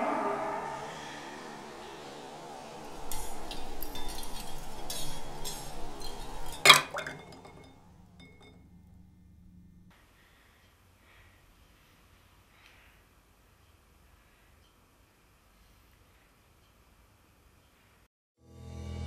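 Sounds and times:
ice cubes clinking in a glass: 0:03.0 - 0:08.6.

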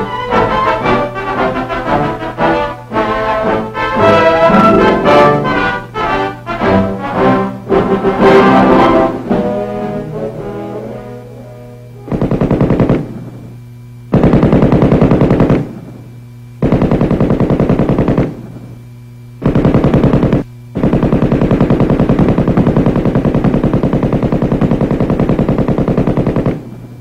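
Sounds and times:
steady low hum: 0:00.0 - 0:27.0
machine gun automatic fire: 0:12.0 - 0:13.4, 0:14.1 - 0:15.9, 0:16.6 - 0:18.6, 0:19.4 - 0:26.8.

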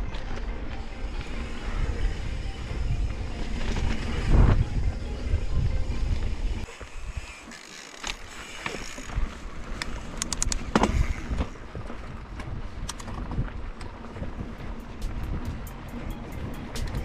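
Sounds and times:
wind buffeting microphone: 0:00.0 - 0:07.4, 0:09.1 - 0:17.0
bike clicks knocks and rattles: 0:07.4 - 0:15.9, 0:16.5 - 0:17.0.

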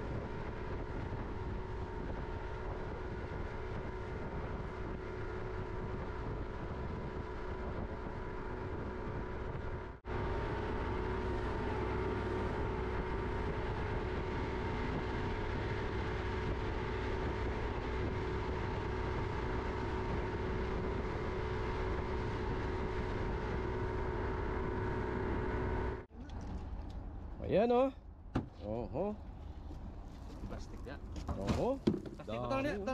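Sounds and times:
motorboat engine running: 0:00.0 - 0:27.2.

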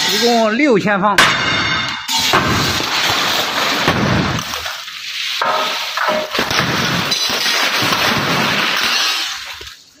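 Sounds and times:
glass shattering: 0:01.2 - 0:09.8
glass fragments tinkling onto floor: 0:05.3 - 0:09.8.

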